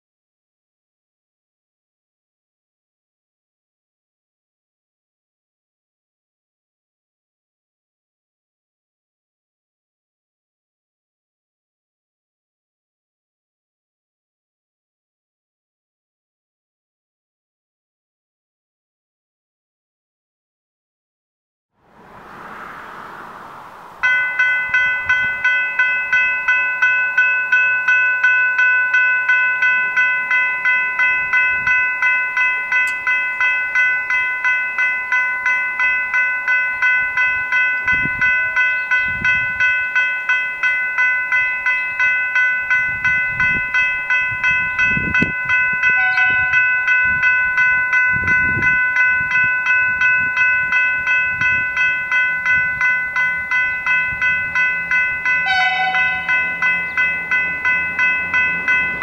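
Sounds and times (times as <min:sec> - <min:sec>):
level crossing warning bells: 0:23.9 - 0:59.0.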